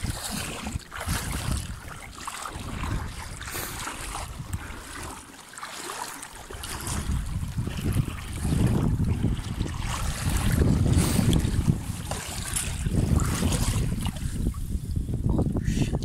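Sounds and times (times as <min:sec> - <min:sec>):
wind buffeting microphone: 0:00.0 - 0:05.0, 0:06.5 - 0:16.0
water sloshing around wading boots: 0:00.0 - 0:15.5.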